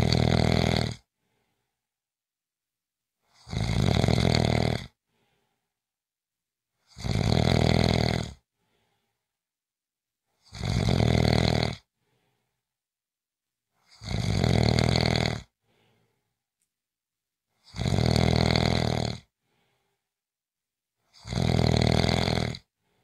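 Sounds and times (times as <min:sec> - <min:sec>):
person snoring: 0:00.0 - 0:01.1, 0:03.3 - 0:05.0, 0:06.8 - 0:08.4, 0:10.4 - 0:11.9, 0:13.8 - 0:15.6, 0:17.6 - 0:19.3, 0:21.1 - 0:22.7
faint breathing: 0:01.2 - 0:01.9, 0:05.0 - 0:05.8, 0:08.5 - 0:09.4, 0:11.9 - 0:12.7, 0:15.6 - 0:16.4, 0:19.4 - 0:20.2, 0:22.8 - 0:23.0.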